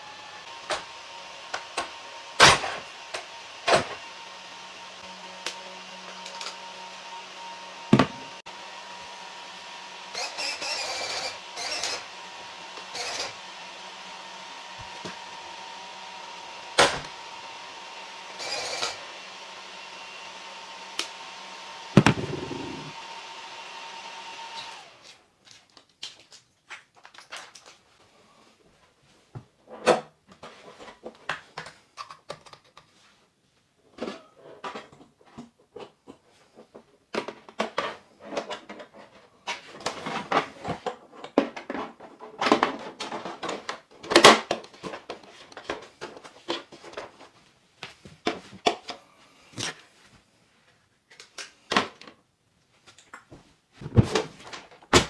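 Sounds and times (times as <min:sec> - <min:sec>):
cooling fans whirring: 0:19.0 - 0:25.0.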